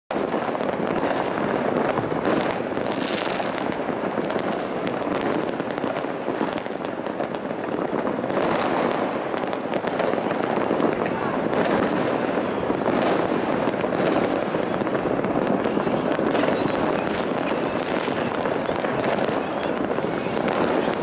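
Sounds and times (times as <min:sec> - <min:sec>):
fireworks bangs and pops: 0:00.1 - 0:21.0
fireworks crackle: 0:00.1 - 0:21.0.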